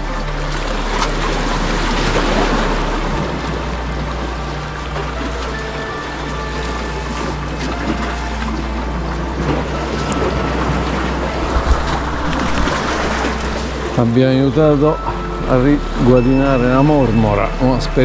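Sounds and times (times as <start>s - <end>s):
waves washing against rocks: 0.0s - 15.1s
wind noise on microphone: 6.8s - 14.0s.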